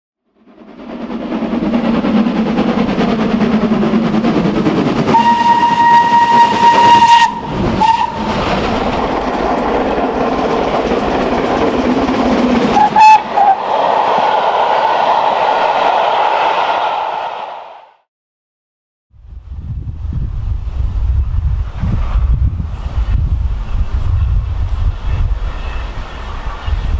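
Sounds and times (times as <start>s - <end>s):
steam train running: 0.3s - 17.8s, 19.9s - 26.9s
steam whistle toots: 5.1s - 8.4s, 12.8s - 13.7s.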